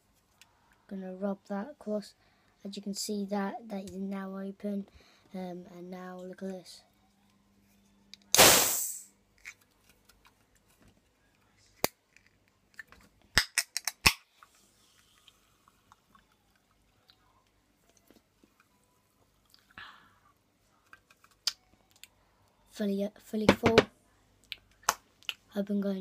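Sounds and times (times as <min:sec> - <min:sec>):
can opening with fizzing hiss: 0:08.3 - 0:09.1.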